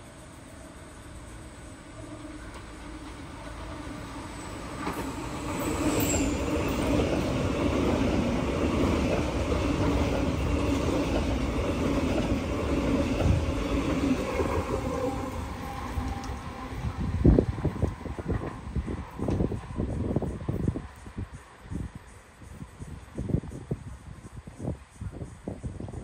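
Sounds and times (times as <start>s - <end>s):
train wheels rumbling on rails: 0.0s - 26.0s
brief high squeal: 5.6s - 6.7s.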